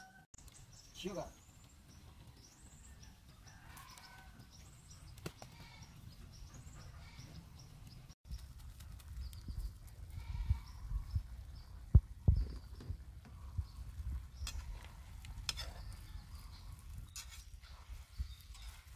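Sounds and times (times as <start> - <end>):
wood fire crackling: 0.4 - 6.4, 7.4 - 18.9
small birds chirping: 0.4 - 18.9.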